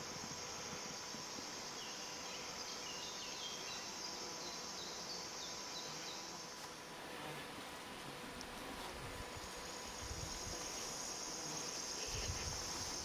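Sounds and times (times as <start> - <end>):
high insect buzz: 0.0 - 13.0.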